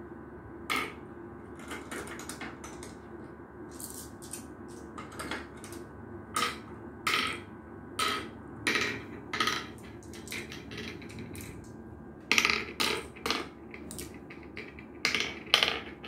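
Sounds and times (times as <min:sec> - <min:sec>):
marbles clicking on wooden board: 0:08.0 - 0:11.6, 0:12.3 - 0:16.0.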